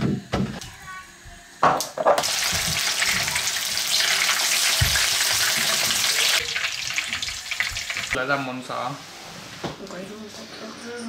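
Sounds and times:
meat sizzling in a frying pan: 2.0 - 8.2.

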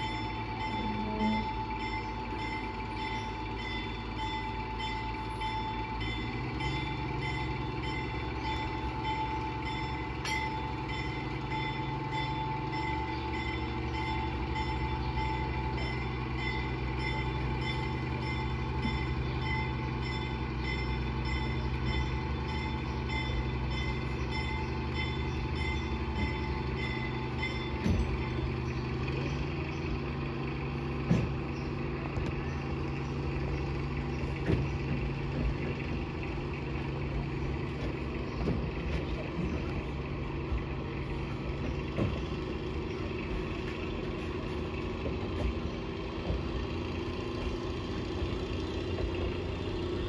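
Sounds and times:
diesel locomotive engine running: 0.0 - 50.0.

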